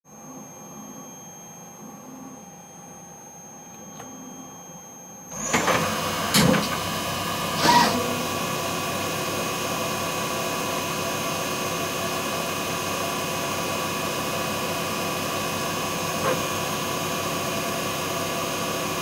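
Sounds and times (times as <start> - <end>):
thin electronic whine: 0.1 - 10.6
faint machine hum: 0.1 - 19.0
lathe spindle running: 5.3 - 19.0.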